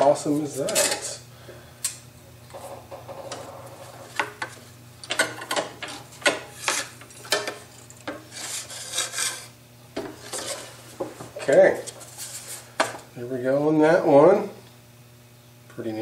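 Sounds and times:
wood scraping on metal table: 0:02.5 - 0:04.6, 0:05.6 - 0:12.7.

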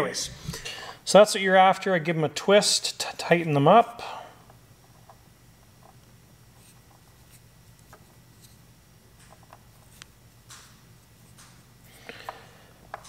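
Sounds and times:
low steady hum: 0:00.0 - 0:13.0
ticks and rustles of twisting wires: 0:04.4 - 0:13.0.

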